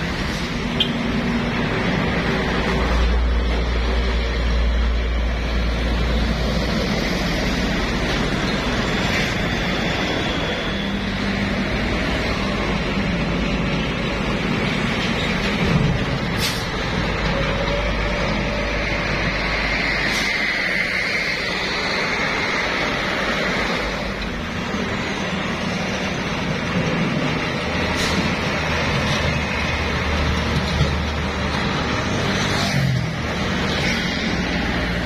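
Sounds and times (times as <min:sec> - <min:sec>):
diesel trucks passing: 0:00.0 - 0:35.0
dump truck pulling away: 0:04.8 - 0:20.7
short air hisses: 0:16.4 - 0:16.7.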